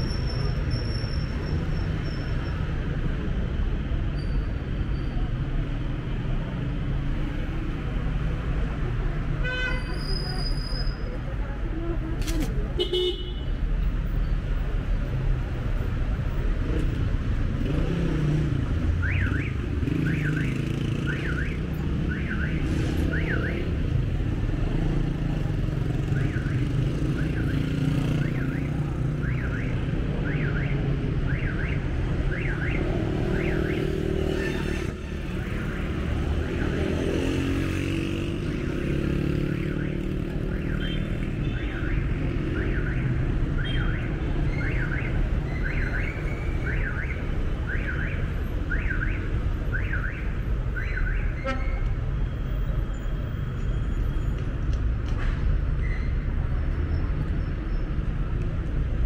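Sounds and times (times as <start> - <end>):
street traffic: 0.0 - 59.0
motorcycle passing: 33.2 - 41.4.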